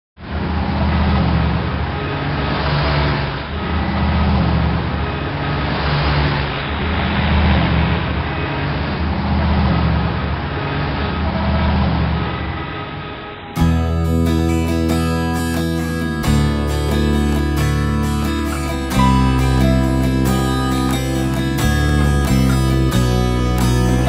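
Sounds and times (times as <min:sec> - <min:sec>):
road traffic noise: 0:00.2 - 0:24.0
low engine hum: 0:13.6 - 0:24.0.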